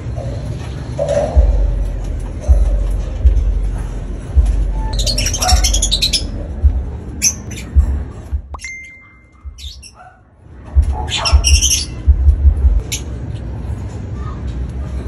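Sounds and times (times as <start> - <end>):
lovebirds chirping and squawking: 0.0 - 13.5
low thumps: 1.4 - 8.6, 10.8 - 12.8.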